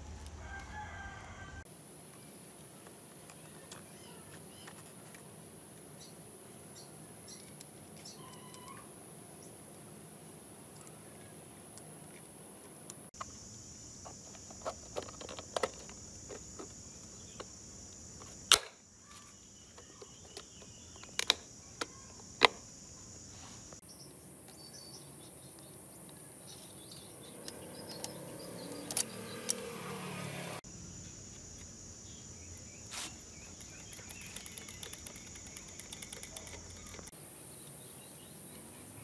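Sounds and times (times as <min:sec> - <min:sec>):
high insect drone: 0:11.2 - 0:39.0.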